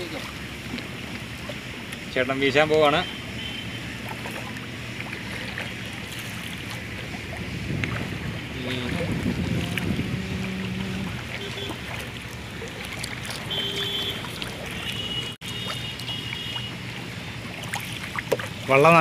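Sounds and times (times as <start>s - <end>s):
water lapping against boat: 0.0s - 19.0s
wind buffeting microphone: 6.1s - 12.6s.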